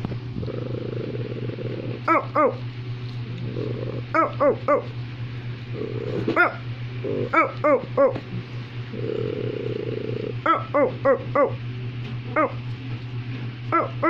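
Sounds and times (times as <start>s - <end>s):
steady low hum: 0.0s - 14.0s
dog barking: 2.1s - 2.6s, 4.1s - 4.9s, 6.3s - 8.2s, 10.4s - 11.6s, 13.7s - 14.0s.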